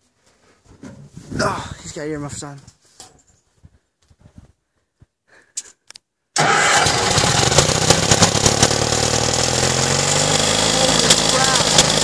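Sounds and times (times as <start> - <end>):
crane engine starting and running: 6.4 - 12.0.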